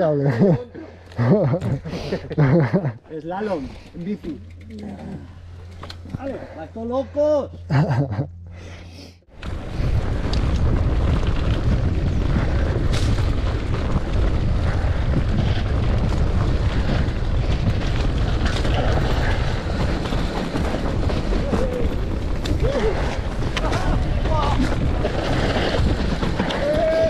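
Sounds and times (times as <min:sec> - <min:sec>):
mountain bike rumble: 0:00.0 - 0:27.0
wind buffeting microphone: 0:09.3 - 0:27.0.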